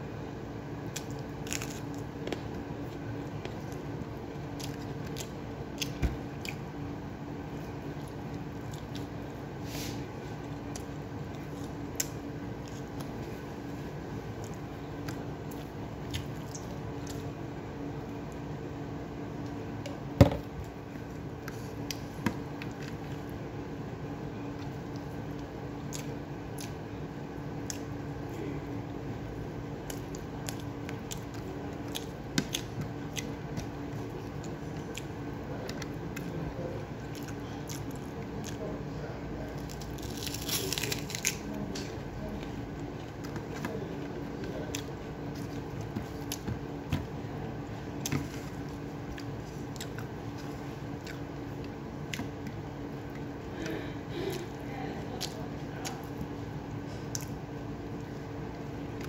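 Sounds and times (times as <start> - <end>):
steady low hum: 0.0 - 59.0
crisp crunching bite: 0.9 - 2.0, 39.5 - 41.5
wet chewing and mouth smacks: 0.9 - 6.7, 29.8 - 36.4, 37.0 - 38.6, 48.0 - 53.3, 57.0 - 57.4.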